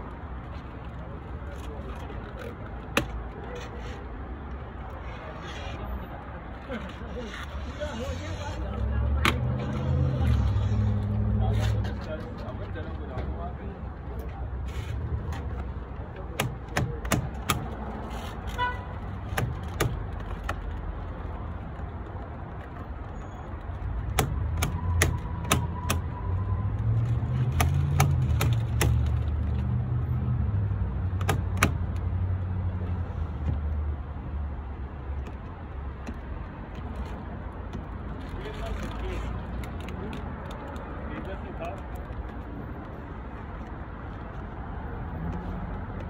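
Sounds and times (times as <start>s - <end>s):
vehicle engine rumbling: 0.0s - 46.0s
clicks and taps on car door: 2.9s - 3.3s, 16.2s - 17.8s, 19.3s - 20.8s, 24.1s - 26.1s, 27.4s - 29.3s, 31.2s - 32.0s, 35.2s - 38.0s.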